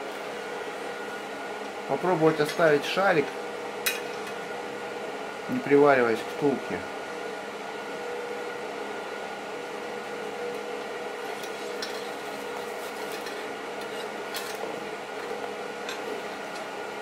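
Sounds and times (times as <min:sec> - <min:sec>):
electric machine hum with whine: 0:00.0 - 0:17.0.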